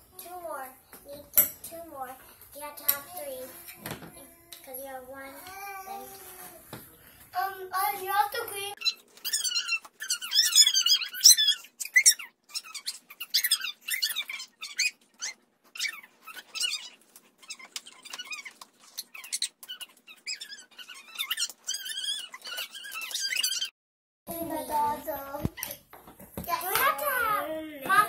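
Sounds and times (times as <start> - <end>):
children chattering and squealing: 0.2 - 17.7.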